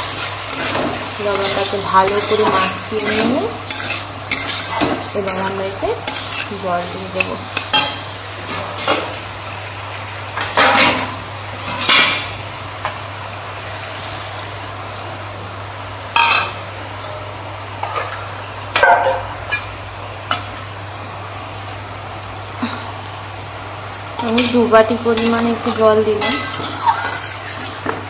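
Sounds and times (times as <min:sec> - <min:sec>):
metal utensils clanking on pan: 0:00.0 - 0:09.2, 0:10.4 - 0:13.0, 0:24.2 - 0:28.0.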